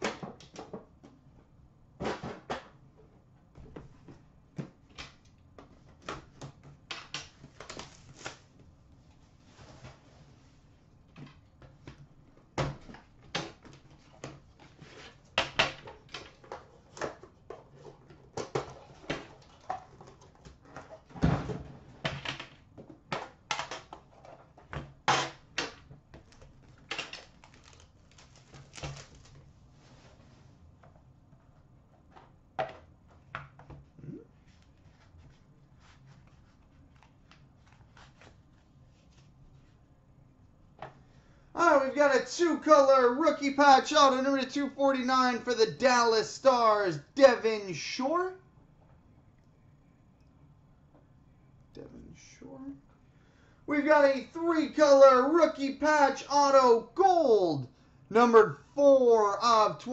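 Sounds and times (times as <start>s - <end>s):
plastic wrap crackling: 27.0s - 29.4s.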